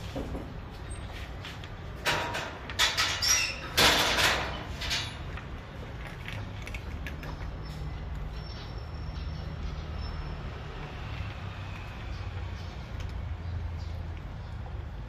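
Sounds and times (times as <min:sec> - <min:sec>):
cats crunching food: 0:05.3 - 0:08.3.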